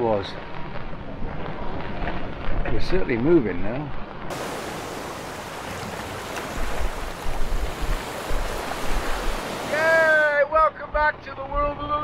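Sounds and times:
wind rumbling on microphone: 0:00.0 - 0:12.0
water rushing along hull: 0:04.2 - 0:12.0.

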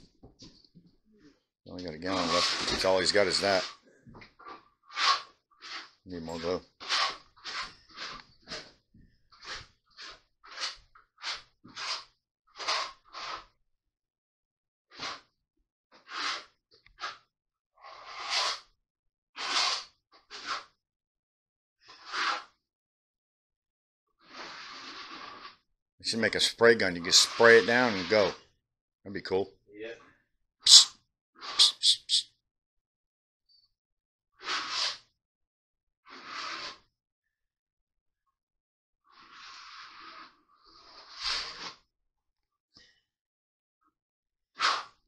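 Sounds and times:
trowel scraping adhesive: 0:02.1 - 0:03.8, 0:04.9 - 0:08.6, 0:09.4 - 0:13.4, 0:16.0 - 0:17.2, 0:17.9 - 0:18.7, 0:19.4 - 0:20.7, 0:26.3 - 0:28.4, 0:30.7 - 0:30.9, 0:31.6 - 0:32.2, 0:34.4 - 0:35.0, 0:36.1 - 0:36.8, 0:40.8 - 0:41.8.

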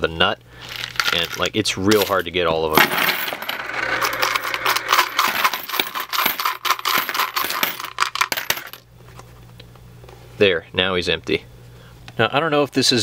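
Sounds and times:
coins clinking onto pile: 0:00.6 - 0:08.8
coins rattling in plastic bank: 0:00.6 - 0:08.8.

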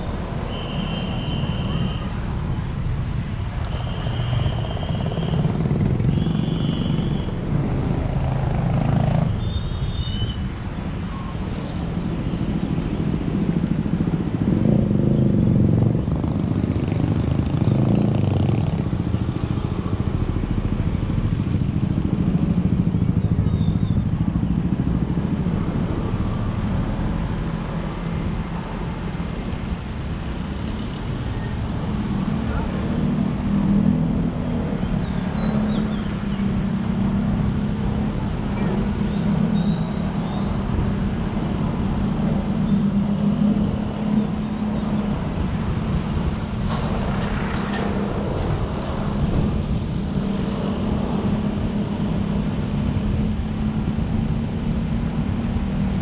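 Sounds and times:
motorbikes passing: 0:00.0 - 0:56.0
vehicle engine and road rumble: 0:00.0 - 0:56.0.

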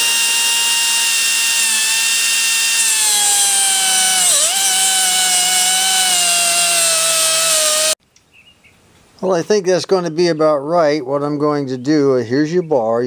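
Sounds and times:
cutting wheel whining through steel: 0:00.0 - 0:08.0.

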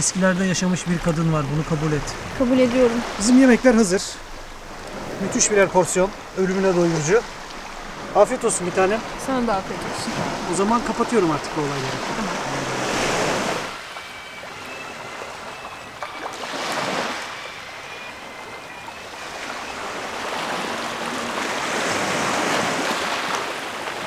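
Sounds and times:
waves washing onto pebbles: 0:00.0 - 0:18.1, 0:19.1 - 0:24.0.

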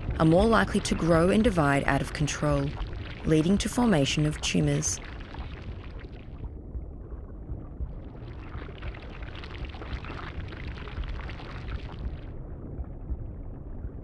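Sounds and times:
low rumble: 0:05.7 - 0:14.0.

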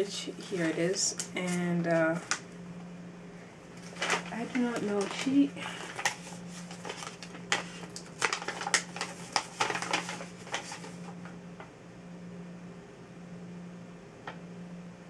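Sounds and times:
steady low hum: 0:00.0 - 0:15.0
packaging crinkling: 0:03.8 - 0:11.3.

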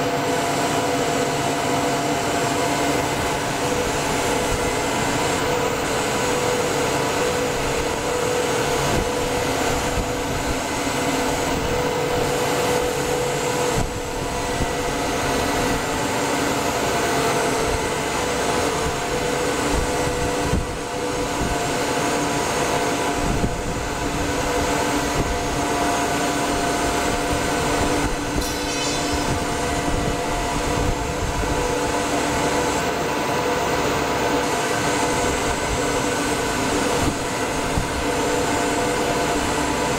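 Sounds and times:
steady hum tones: 0:28.4 - 0:32.3
machine mechanical drone: 0:28.4 - 0:32.4.

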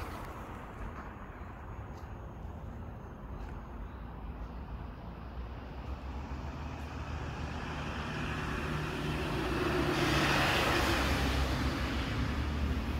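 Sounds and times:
vehicle engine hum and road noise: 0:00.0 - 0:12.9.

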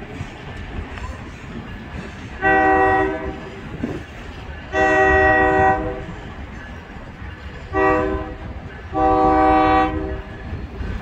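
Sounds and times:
locomotive air horn blasts: 0:02.4 - 0:03.5, 0:04.7 - 0:06.2, 0:07.7 - 0:10.3.

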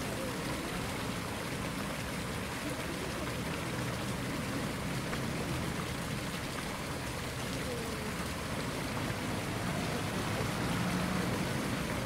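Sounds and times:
fountain water splashing: 0:00.0 - 0:12.0.

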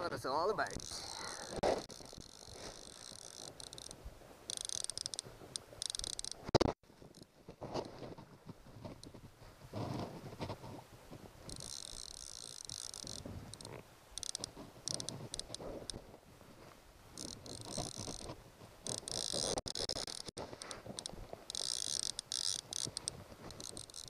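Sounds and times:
fishing reel ratchet buzzing: 0:00.7 - 0:06.4, 0:11.5 - 0:15.6, 0:17.2 - 0:20.3, 0:21.0 - 0:24.0.

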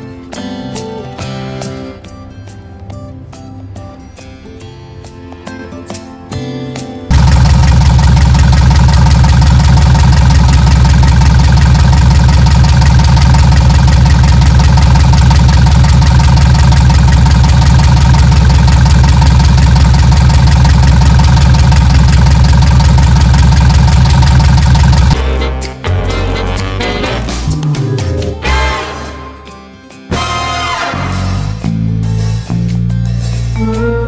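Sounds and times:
car engine idling: 0:07.1 - 0:25.2.

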